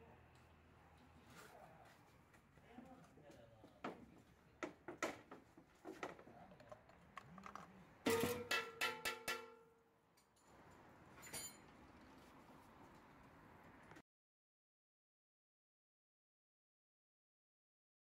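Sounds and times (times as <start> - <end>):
metal tools clattering: 8.1 - 9.6, 10.2 - 11.8.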